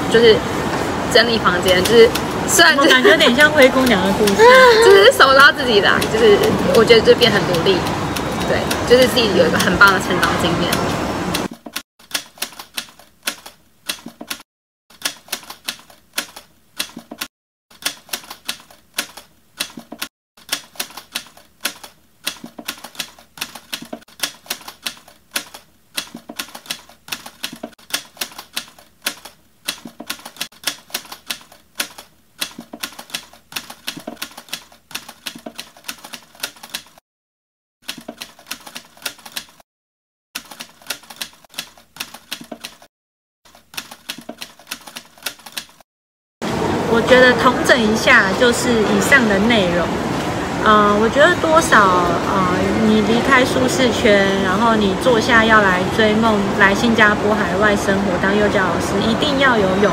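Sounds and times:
typewriter key clicks: 10.7s - 37.0s, 37.9s - 39.6s.

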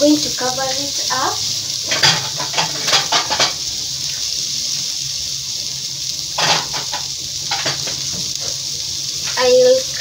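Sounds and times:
vegetables sizzling in pan: 0.0s - 10.0s.

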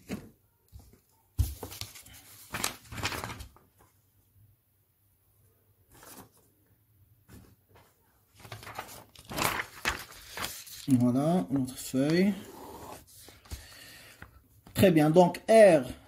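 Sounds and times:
paper rustling and scraping: 1.4s - 3.9s, 5.9s - 6.5s, 7.3s - 13.7s.

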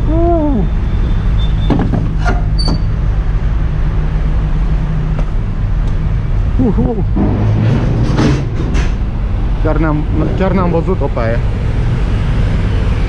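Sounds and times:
sharp knocks: 7.2s - 9.3s.

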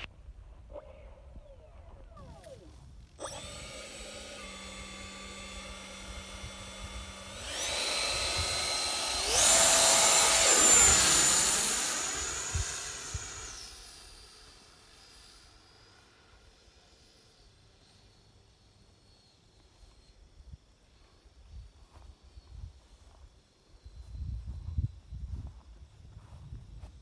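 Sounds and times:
model jet fan whine: 2.0s - 20.9s.

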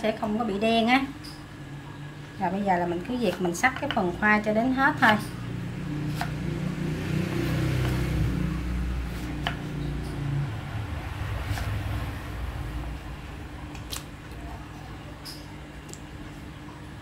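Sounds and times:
low hum: 4.0s - 17.0s.

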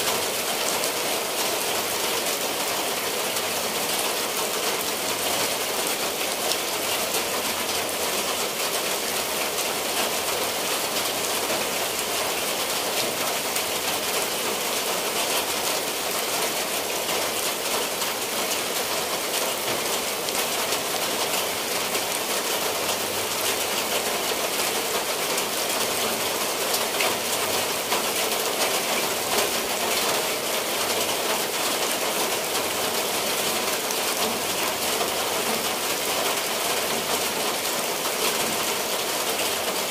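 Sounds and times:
rain falling on tiled roofs: 0.0s - 39.9s.

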